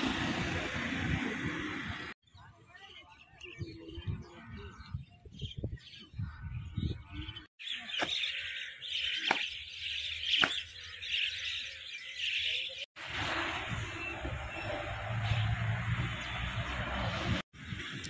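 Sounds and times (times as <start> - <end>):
birds chirping: 1.6 - 13.0.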